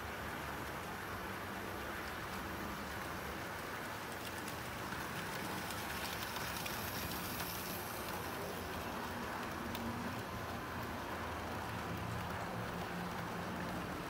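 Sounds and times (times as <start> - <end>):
model train wheels rumbling on rail: 1.8 - 14.0
faint clicks: 3.0 - 14.0.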